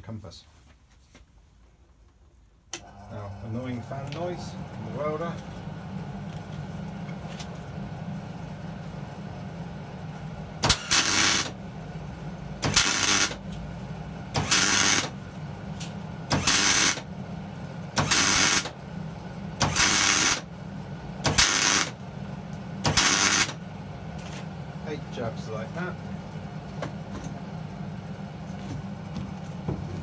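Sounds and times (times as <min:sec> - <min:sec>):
cooling fan humming: 0:02.2 - 0:30.0
welder arc crackling: 0:10.6 - 0:11.6, 0:12.5 - 0:13.7, 0:14.4 - 0:18.8, 0:19.6 - 0:20.5, 0:21.2 - 0:23.6.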